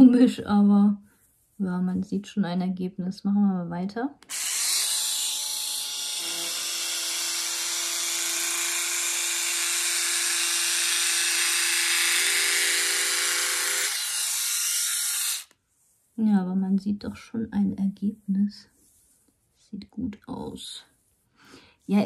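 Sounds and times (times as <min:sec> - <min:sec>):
epilator motor whirring: 0:04.2 - 0:15.5.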